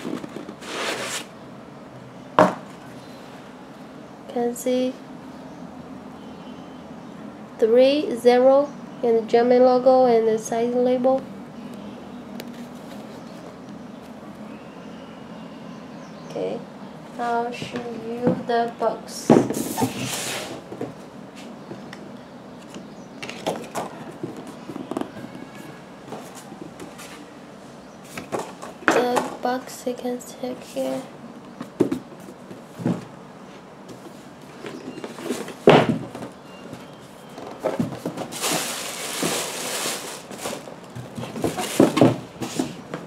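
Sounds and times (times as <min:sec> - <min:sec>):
cardboard box rustling: 0:37.6 - 0:42.8
cardboard knocks and scrapes: 0:37.6 - 0:43.0
tissue paper rustling: 0:38.3 - 0:40.6.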